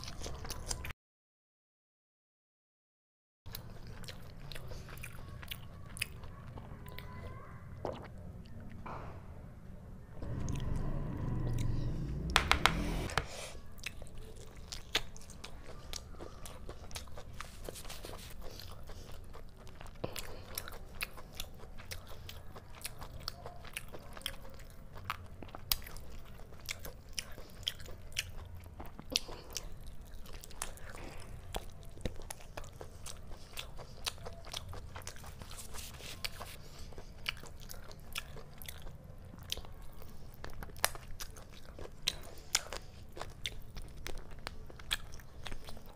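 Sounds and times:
chewing and biting meat: 3.5s - 7.2s, 13.7s - 45.9s
louder knocks: 12.3s - 13.2s.

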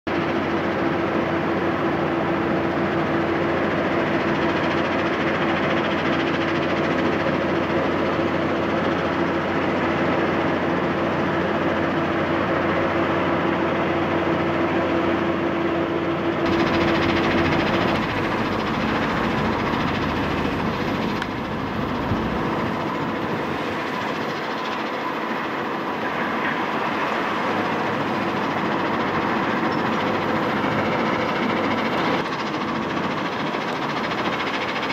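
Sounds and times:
steady hum: 14.7s - 34.9s.

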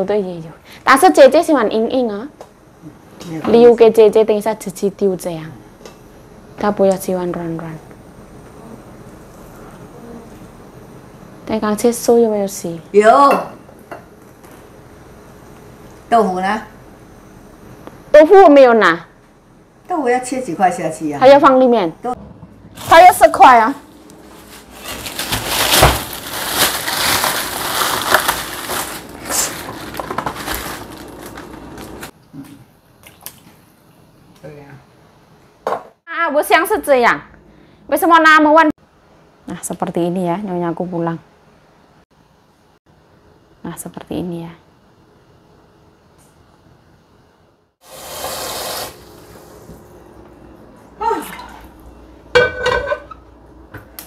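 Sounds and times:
person exclaiming: 51.0s - 51.5s.

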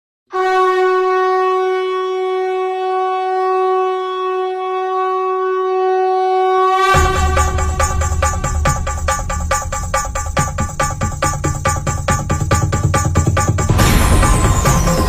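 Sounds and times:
conch shell blown: 0.3s - 9.0s.

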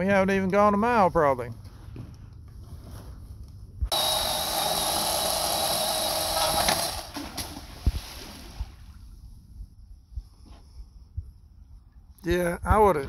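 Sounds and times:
chainsaw cutting wood: 3.9s - 7.5s.

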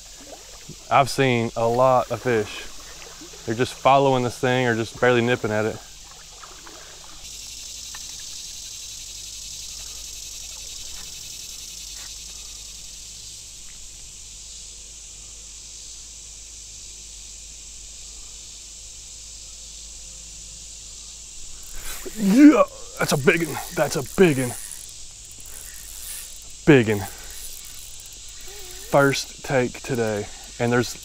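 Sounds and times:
insect chorus drone: 0.0s - 31.0s
faint ticks: 6.0s - 12.9s, 22.9s - 31.0s.

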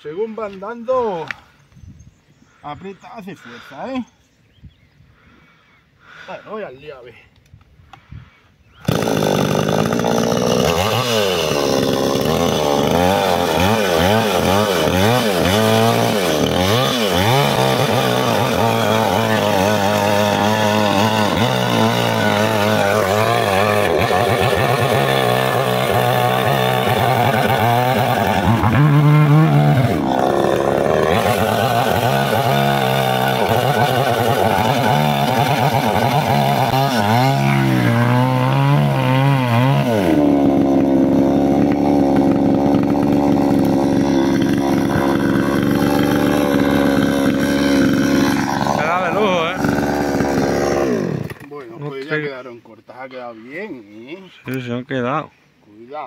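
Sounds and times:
chainsaw cutting wood: 8.8s - 52.2s.

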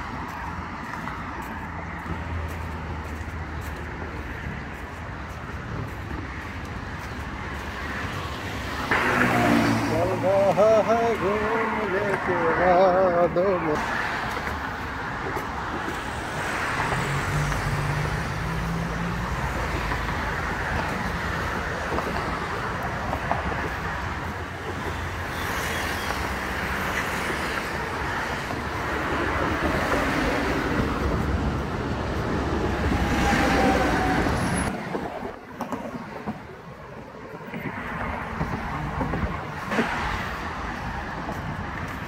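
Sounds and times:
road traffic passing: 0.0s - 42.0s.

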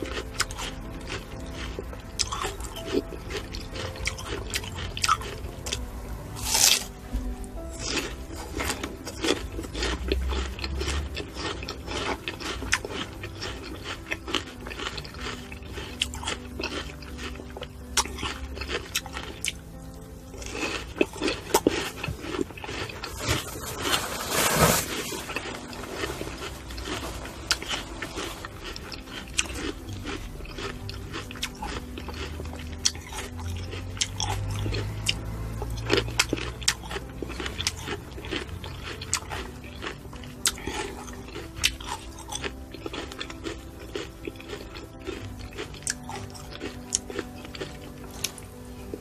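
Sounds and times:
faint background music: 0.0s - 49.0s
person chewing fruit: 0.0s - 49.0s.

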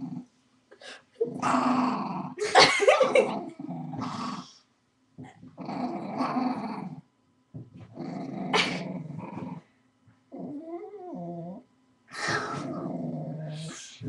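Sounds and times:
dog growling: 0.0s - 0.3s, 1.2s - 4.6s, 5.2s - 7.1s, 7.8s - 9.7s, 10.3s - 14.0s.

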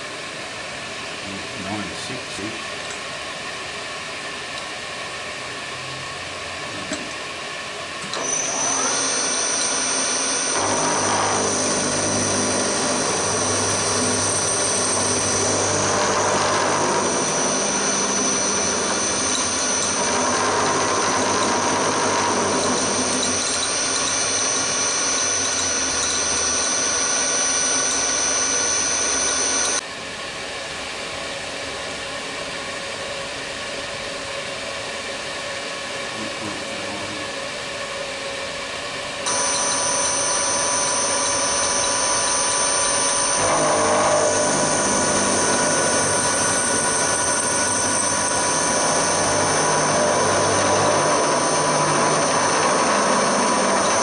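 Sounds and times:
milling machine spindle running: 5.0s - 29.8s, 39.3s - 54.0s
high whine: 8.1s - 29.8s, 39.2s - 54.0s
rough metal cutting noise: 8.1s - 29.8s, 39.3s - 54.0s.

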